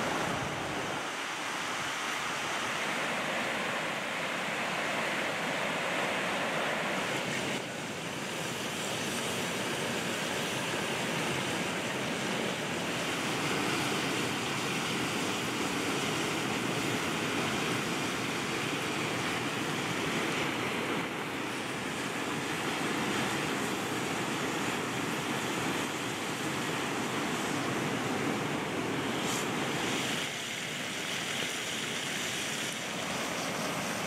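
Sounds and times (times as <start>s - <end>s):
river rushing over stones: 0.0s - 34.0s
fire hissing under cooking pan: 28.4s - 34.0s.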